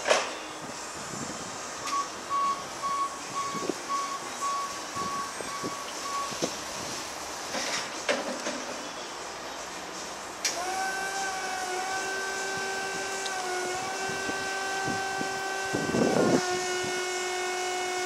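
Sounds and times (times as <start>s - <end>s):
forklift reversing alarm beeping: 1.8s - 6.5s.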